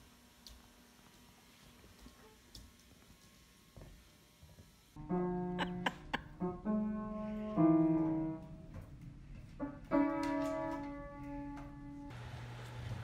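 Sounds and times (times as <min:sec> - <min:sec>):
piano note clusters: 0:09.6 - 0:12.1.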